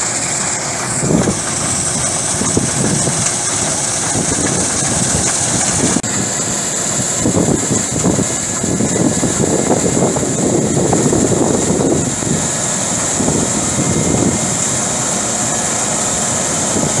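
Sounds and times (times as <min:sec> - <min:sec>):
combine harvester running: 0:00.0 - 0:17.0.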